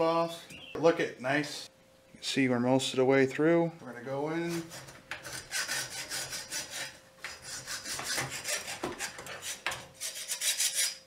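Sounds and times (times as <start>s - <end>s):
hacksaw cutting metal: 4.5s - 11.0s.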